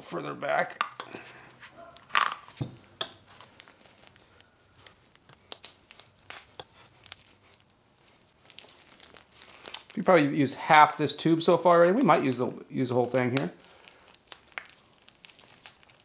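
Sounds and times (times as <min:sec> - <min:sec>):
grease tube crinkling: 0:00.4 - 0:16.0
small clicks and squishes: 0:02.8 - 0:10.1, 0:10.8 - 0:16.0.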